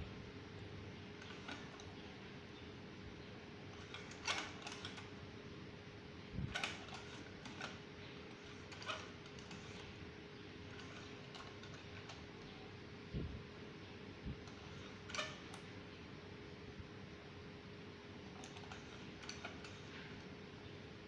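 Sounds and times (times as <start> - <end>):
steady faint hum: 0.0 - 21.0
screwdriver clicks and creaks: 1.2 - 1.9, 3.8 - 5.0, 6.5 - 10.0, 10.7 - 12.2, 14.4 - 15.7, 18.4 - 20.3.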